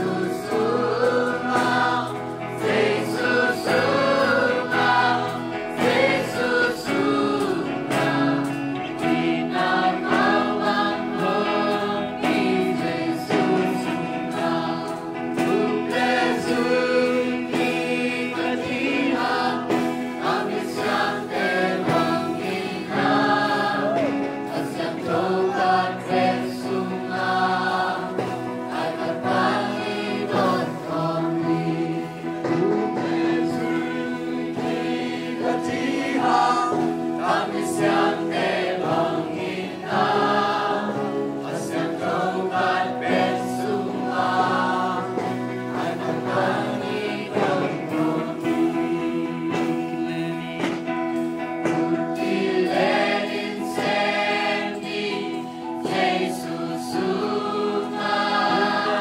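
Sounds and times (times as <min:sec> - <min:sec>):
choir singing gospel song: 0:00.0 - 0:59.0.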